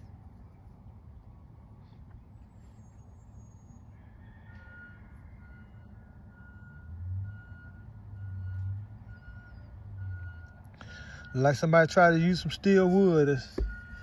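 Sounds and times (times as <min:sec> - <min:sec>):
reversing alarm beeping: 0:04.5 - 0:11.9, 0:13.3 - 0:14.0.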